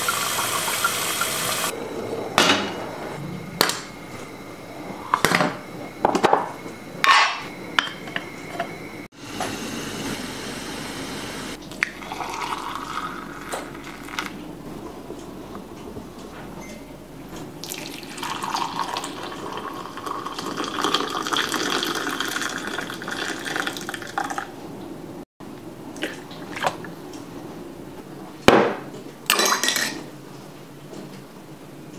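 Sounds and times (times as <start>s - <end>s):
coffee pouring into a mug: 11.8s - 14.4s, 17.6s - 24.5s.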